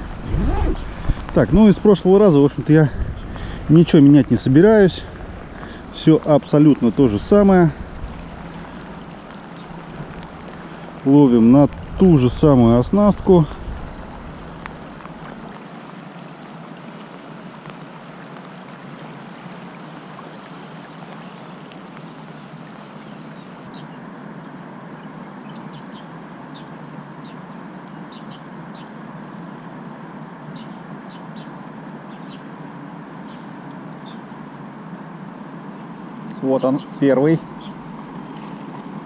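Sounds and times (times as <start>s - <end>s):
water rushing over riffle: 0.0s - 23.7s.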